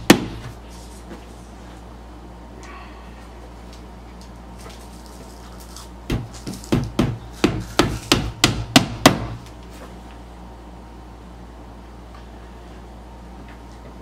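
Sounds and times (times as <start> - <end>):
hammer tapping a nail: 6.1 - 9.4.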